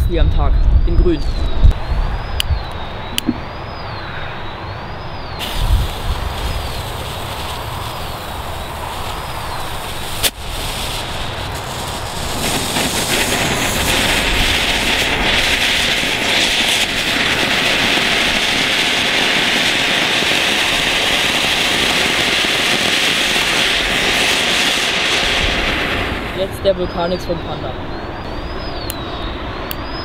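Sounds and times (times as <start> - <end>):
sharp snap: 3.1 - 3.4, 10.2 - 10.4
firework fountain hissing: 5.4 - 27.3.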